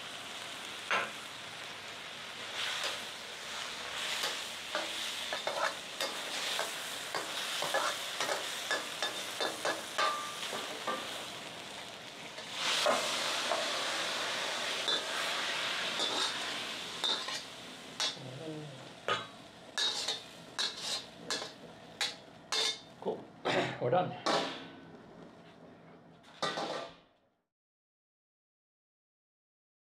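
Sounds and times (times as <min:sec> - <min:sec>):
vegetables sizzling in a wok: 0:00.0 - 0:23.2
metal spatula scraping a wok: 0:02.5 - 0:11.2, 0:14.7 - 0:18.2, 0:19.1 - 0:22.9, 0:26.2 - 0:27.0.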